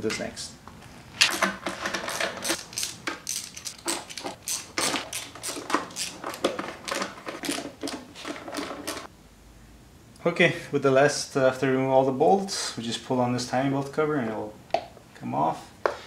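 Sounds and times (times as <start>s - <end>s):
hand tool clicking on bolts: 1.3s - 9.1s.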